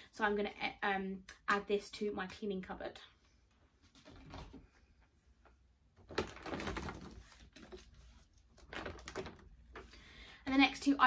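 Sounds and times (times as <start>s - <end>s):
rummaging in shopping bag: 6.0s - 10.0s.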